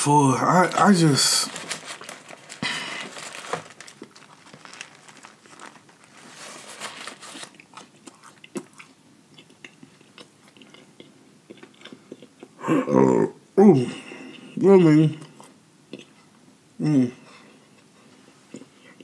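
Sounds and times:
person chewing crunchy food: 0:01.6 - 0:12.6.

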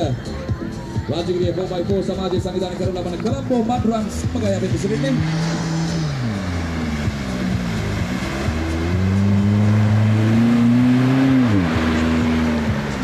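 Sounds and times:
engine revving hard: 0:04.0 - 0:13.0
mud and water spraying: 0:04.1 - 0:13.0.

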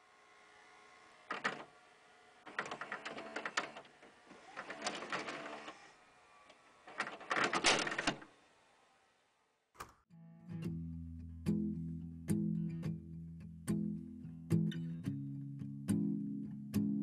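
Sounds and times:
rapid mechanical clicking: 0:01.2 - 0:01.7, 0:02.4 - 0:05.8, 0:06.5 - 0:08.3.

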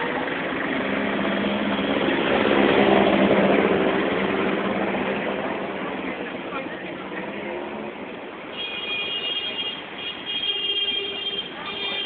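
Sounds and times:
vehicle engine humming: 0:00.0 - 0:08.5
constant noisy wash: 0:00.0 - 0:10.4.

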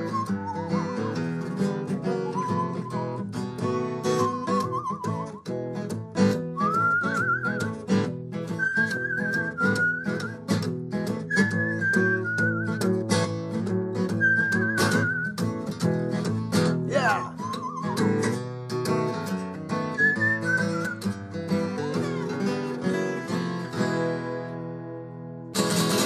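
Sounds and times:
parrot whistling: 0:00.0 - 0:01.1, 0:02.1 - 0:03.2, 0:04.2 - 0:05.3, 0:08.6 - 0:10.3, 0:17.1 - 0:18.2
acoustic guitar strumming blues: 0:00.0 - 0:26.0.

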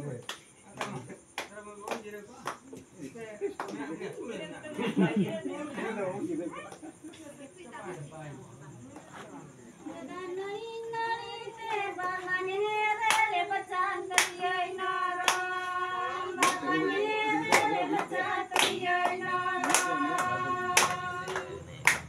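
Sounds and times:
hand claps: 0:00.0 - 0:04.3, 0:06.6 - 0:06.9, 0:11.6 - 0:12.4, 0:13.0 - 0:22.0
women singing together: 0:09.8 - 0:22.0.

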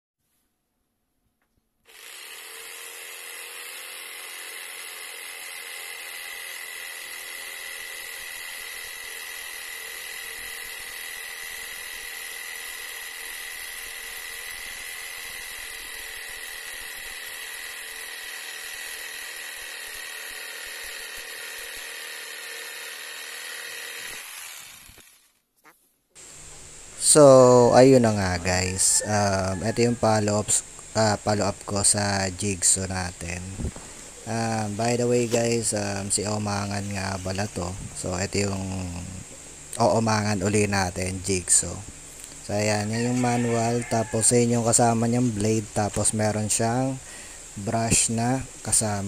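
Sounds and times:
electric jigsaw cutting wood: 0:01.9 - 0:25.4, 0:26.2 - 0:39.2.

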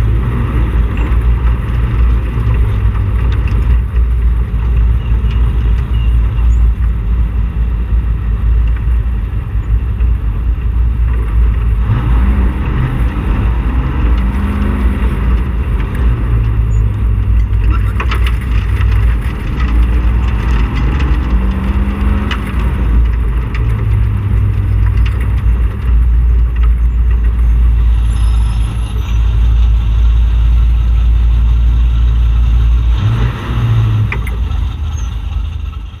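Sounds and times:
race car engine rumbling: 0:00.0 - 0:36.0.

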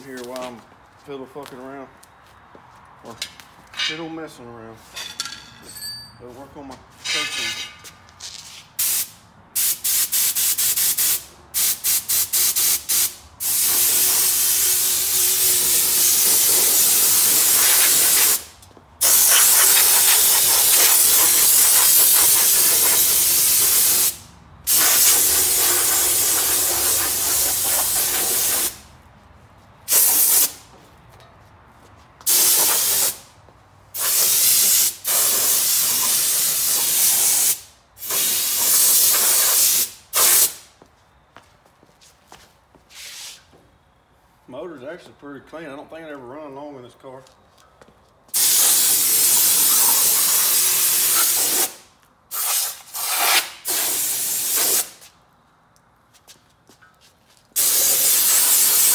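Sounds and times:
spray gun hissing: 0:08.8 - 0:18.4, 0:19.0 - 0:28.8, 0:29.9 - 0:30.5, 0:32.3 - 0:33.2, 0:34.0 - 0:40.6, 0:48.4 - 0:54.9, 0:57.6 - 0:58.9.

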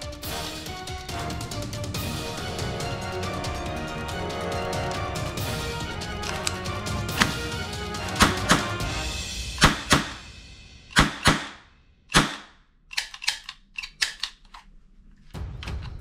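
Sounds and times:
cap gun shots: 0:07.1 - 0:07.5, 0:08.2 - 0:08.8, 0:09.6 - 0:10.2, 0:10.9 - 0:14.2.

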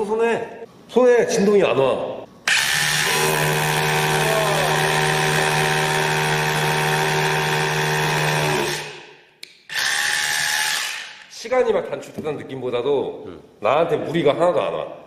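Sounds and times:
rotary hammer drilling concrete: 0:02.5 - 0:09.0, 0:09.7 - 0:11.2.

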